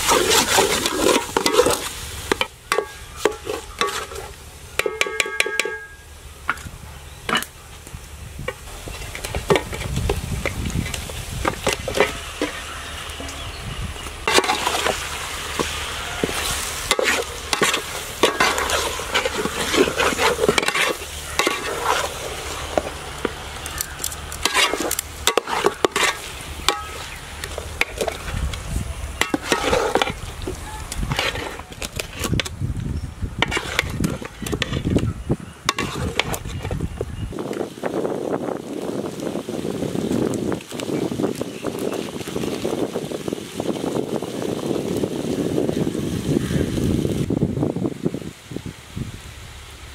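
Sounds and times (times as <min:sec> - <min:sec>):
metal ladle scraping a pot: 0:00.0 - 0:06.6, 0:10.8 - 0:32.5, 0:33.4 - 0:35.0, 0:35.6 - 0:36.8
frying sizzle: 0:00.0 - 0:49.9.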